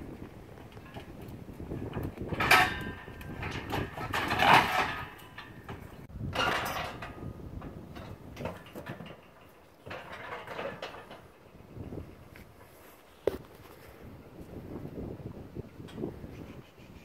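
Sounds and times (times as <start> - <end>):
steel cattle crush clanging: 0.1 - 12.1.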